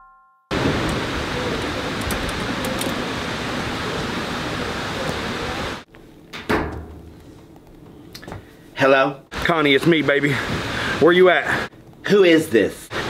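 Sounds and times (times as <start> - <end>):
outdoor street rushing noise: 0.5 - 5.9.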